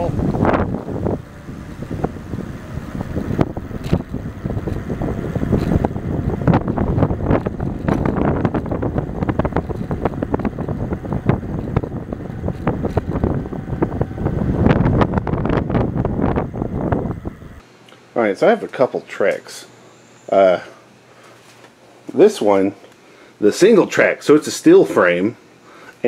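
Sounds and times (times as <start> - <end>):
wind buffeting microphone: 0.0 - 17.6.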